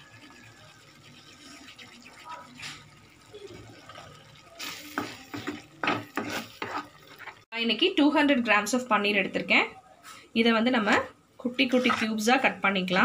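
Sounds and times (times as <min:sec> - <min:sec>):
ladle stirring thick gravy: 0:00.0 - 0:07.5.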